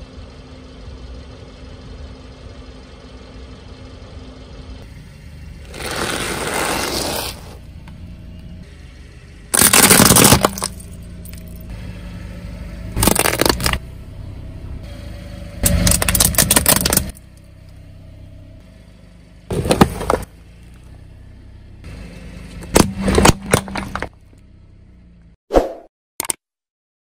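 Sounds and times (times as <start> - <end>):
car engine humming: 0.0 - 25.4
plastic cracking and crunching: 9.6 - 10.7, 13.0 - 13.8, 15.8 - 17.1.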